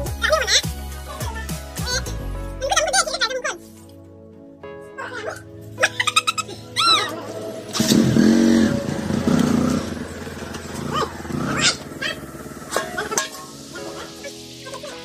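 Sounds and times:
motorcycle engine: 7.1s - 14.6s.

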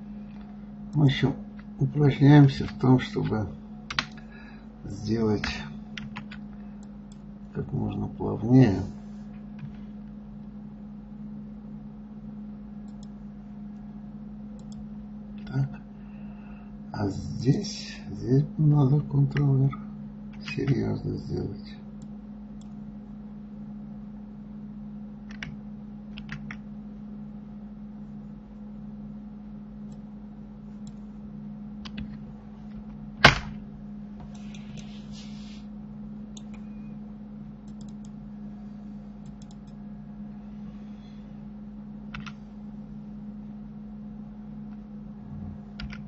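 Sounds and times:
low electrical hum: 0.0s - 46.0s
keyboard and mouse clicks: 2.6s - 4.3s, 25.3s - 26.6s, 36.4s - 36.6s, 37.6s - 38.2s, 39.2s - 39.8s, 42.1s - 42.4s, 45.8s - 46.0s.

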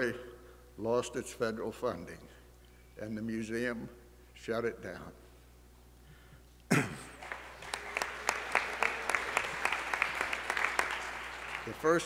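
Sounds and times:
audience applause: 7.1s - 12.0s.

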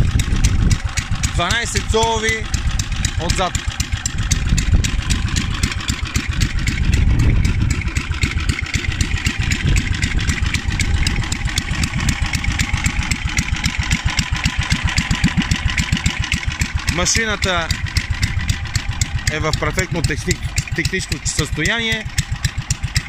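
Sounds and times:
mower petrol engine running: 0.0s - 23.0s.

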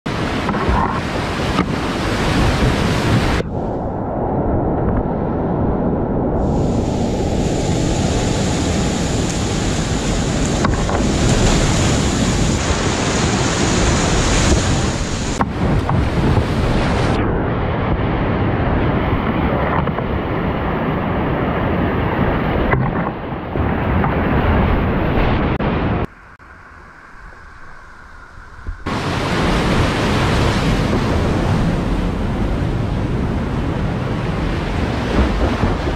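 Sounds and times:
rushing whitewater: 0.1s - 3.4s, 6.5s - 17.2s, 28.8s - 35.9s
wind buffeting microphone: 0.1s - 35.9s.

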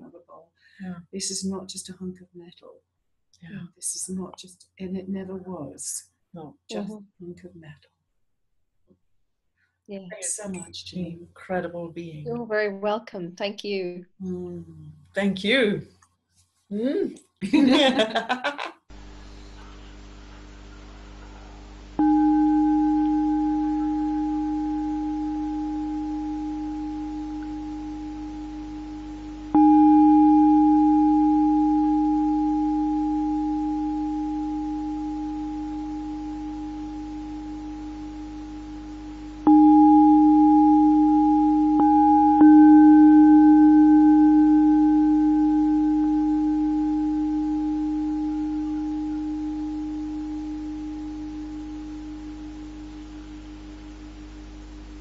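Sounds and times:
metal singing bowl ringing: 22.0s - 54.4s.

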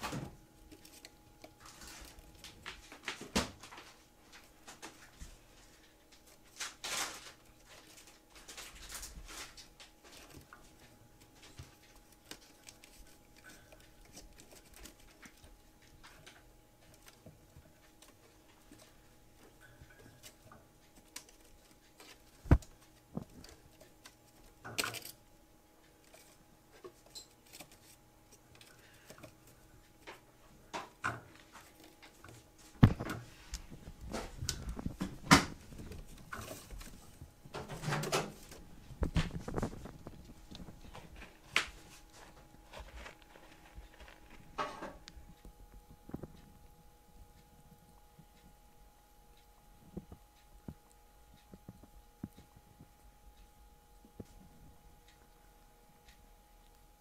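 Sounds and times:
kitten paws tapping and scratching: 0.0s - 55.3s.

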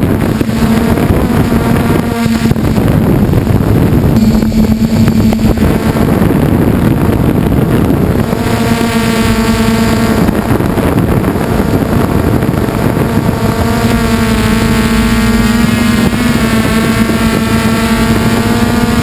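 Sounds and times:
drone propellers humming: 0.0s - 19.0s
wind buffeting microphone: 0.0s - 19.0s.

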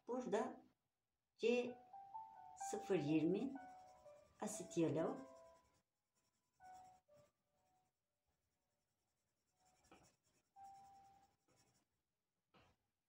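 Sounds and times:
pencil scratching on paper: 3.0s - 7.3s, 8.8s - 11.9s.

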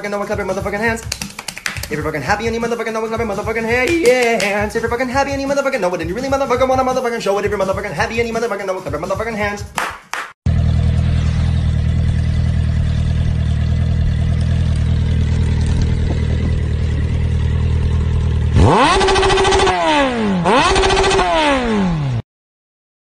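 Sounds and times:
motorcycle engine idling and revving: 10.5s - 22.2s.

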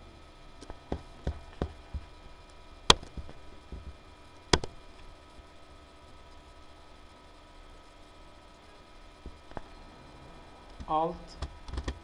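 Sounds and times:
computer mouse clicks: 11.4s - 12.0s.

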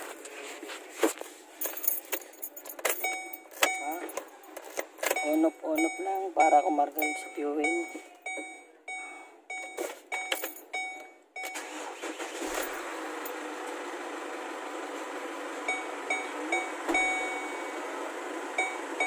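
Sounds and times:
car engine starting and running: 2.2s - 19.0s
dashboard warning chime: 2.7s - 13.4s, 15.7s - 19.0s.

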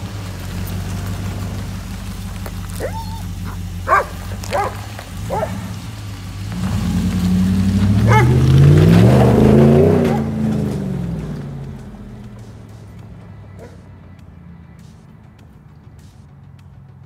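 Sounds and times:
truck exhaust rumbling: 0.0s - 17.0s
dog barking: 2.8s - 5.8s, 8.0s - 8.5s, 10.0s - 10.4s, 13.5s - 13.9s.

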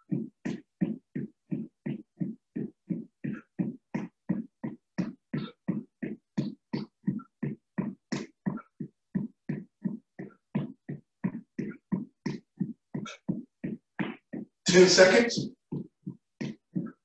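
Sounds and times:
running footsteps on wooden floor: 0.0s - 17.0s.

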